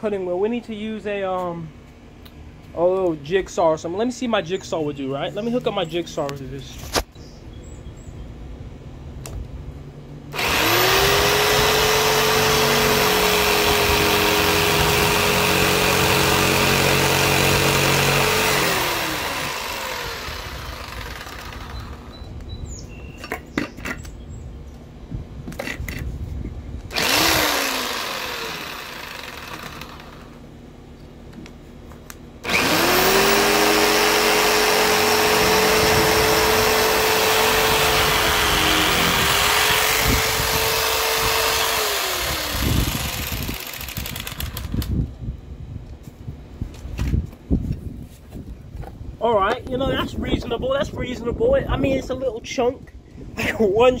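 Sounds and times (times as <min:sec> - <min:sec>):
jigsaw sawing into rubber: 0:10.4 - 0:21.8, 0:26.9 - 0:30.3, 0:32.5 - 0:44.8.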